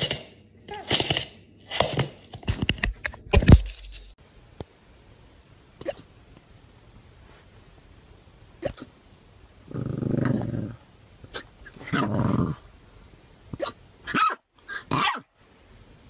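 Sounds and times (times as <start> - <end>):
puppy growling: 9.6 - 12.7.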